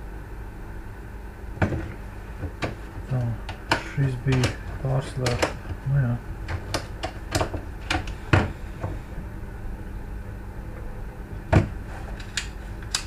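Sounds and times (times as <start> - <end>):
faint steady hum: 0.0 - 13.0
hard plastic clicks and knocks: 3.4 - 5.8, 6.5 - 9.0.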